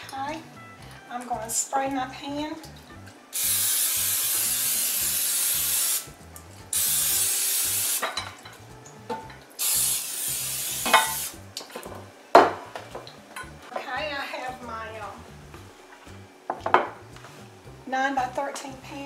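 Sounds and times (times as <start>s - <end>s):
cooking spray hissing from can: 3.3s - 8.2s, 9.6s - 11.5s.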